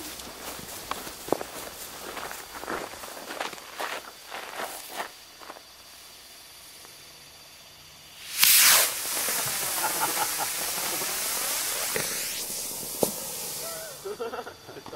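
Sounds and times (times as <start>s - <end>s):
rocket motor hissing: 8.1s - 14.4s
sharp crack: 8.2s - 14.2s.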